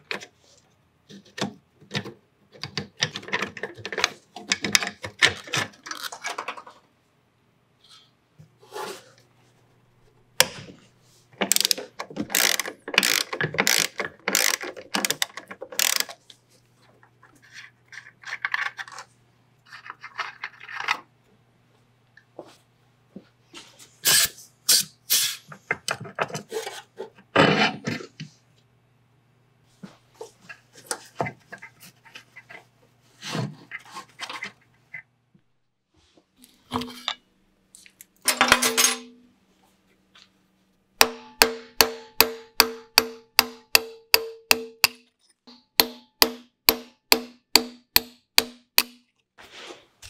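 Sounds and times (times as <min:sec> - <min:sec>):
ratchet wrench clicking: 0:11.5 - 0:15.2, 0:15.8 - 0:16.1.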